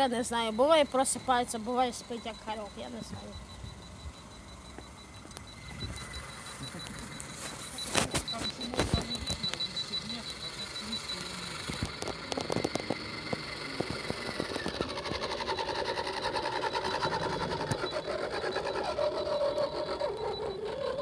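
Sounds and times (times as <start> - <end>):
toy car electric motor whirring: 5.7 - 21.0.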